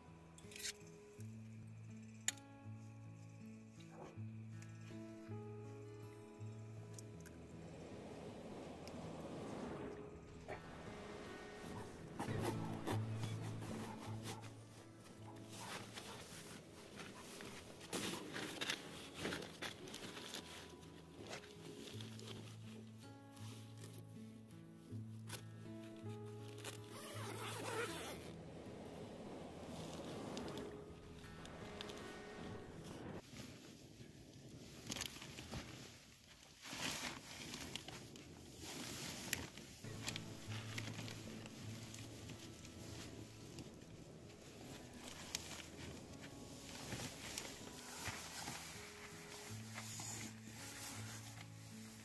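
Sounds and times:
sleeping bag fabric rustling: 0:09.8 - 0:23.9, 0:26.2 - 0:28.4, 0:32.7 - 0:52.0.

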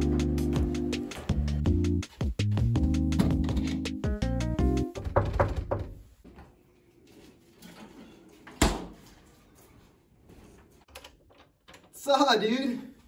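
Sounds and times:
knuckles knocking on wooden door: 0:04.7 - 0:06.0.

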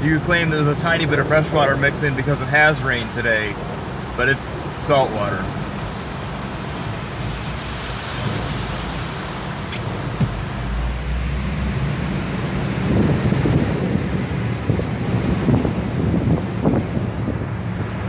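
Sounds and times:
tyre noise on wet road: 0:00.0 - 0:18.0
wind buffeting microphone: 0:05.5 - 0:18.0.

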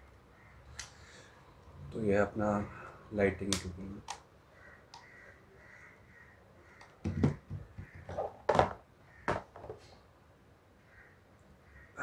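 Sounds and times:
plastic torch knocks and clicks: 0:06.8 - 0:09.7.

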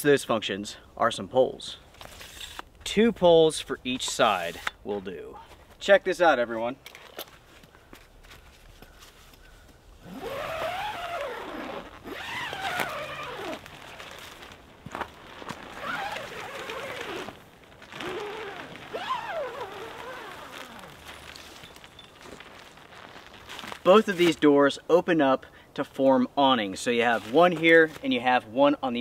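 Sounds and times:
tent door zippers zipping: 0:10.0 - 0:21.8.

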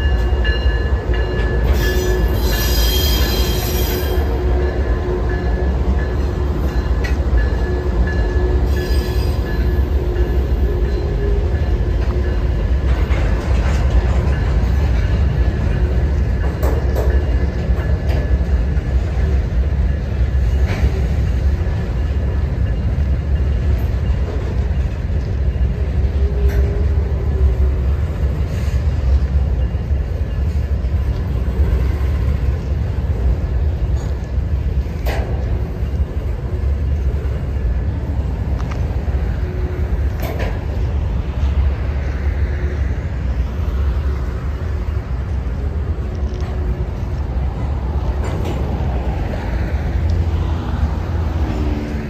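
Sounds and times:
sharp train clanks: 0:00.0 - 0:52.0
train wheels rumbling on rail: 0:00.0 - 0:52.0.

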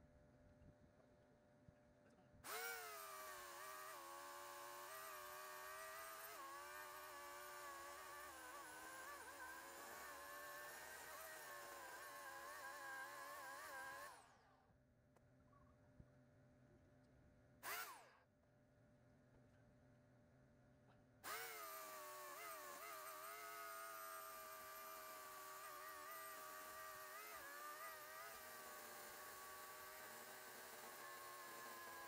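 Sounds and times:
electric chainsaw cutting log: 0:02.4 - 0:14.5, 0:17.6 - 0:18.2, 0:21.2 - 0:32.0.

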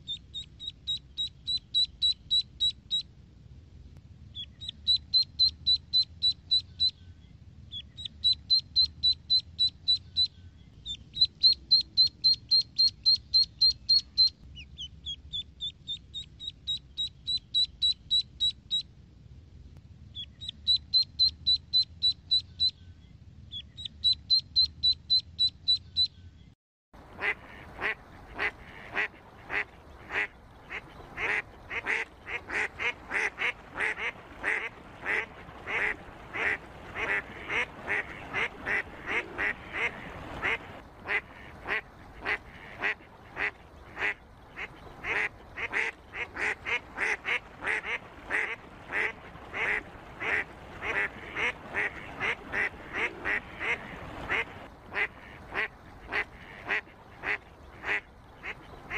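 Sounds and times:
ducks quacking: 0:27.0 - 0:58.9.

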